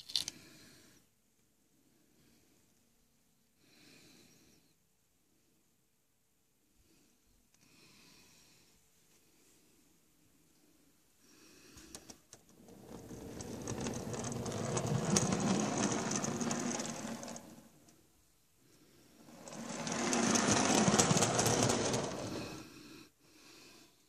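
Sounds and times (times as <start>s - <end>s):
wheel clicks: 12.6s - 17.7s, 19.3s - 22.6s
model wagon wheels rumbling on track: 12.6s - 17.8s, 19.2s - 22.6s.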